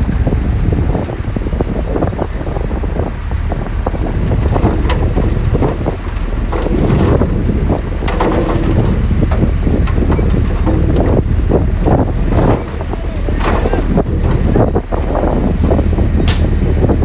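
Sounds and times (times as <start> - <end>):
truck engine running: 0.0 - 17.0
wind buffeting microphone: 0.0 - 17.0
dirt and rocks tumbling: 4.0 - 17.0.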